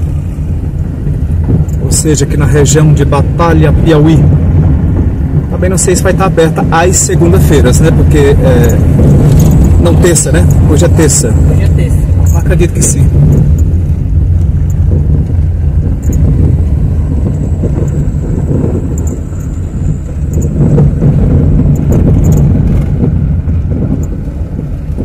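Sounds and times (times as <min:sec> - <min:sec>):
vehicle engine and road rumble: 0:00.0 - 0:25.0.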